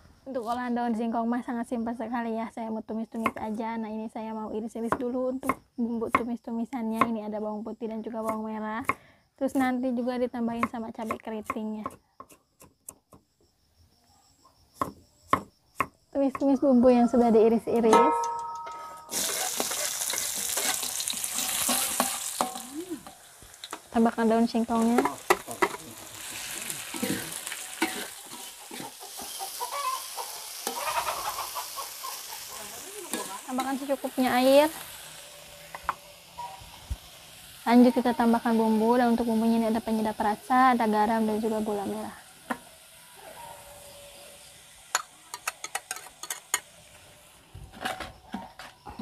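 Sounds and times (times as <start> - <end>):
leaves sizzling in hot oil: 19.0 - 47.6
utensil scraping pan: 19.1 - 22.6, 24.8 - 31.6.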